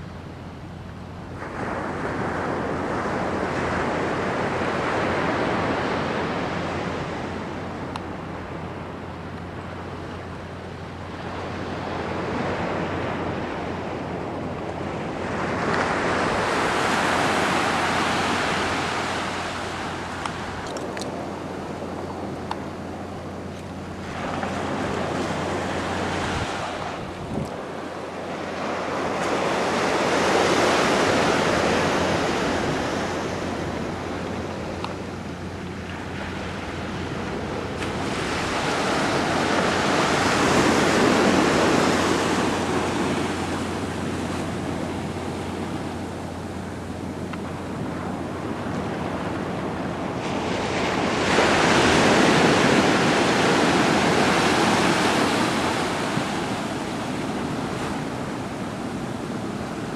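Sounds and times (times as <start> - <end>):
ocean waves breaking on beach: 0.0 - 59.9
wind buffeting microphone: 0.7 - 59.9.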